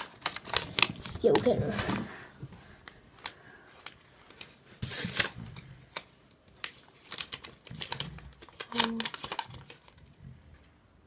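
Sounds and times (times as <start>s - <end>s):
paper slip rustling: 2.8s - 10.0s.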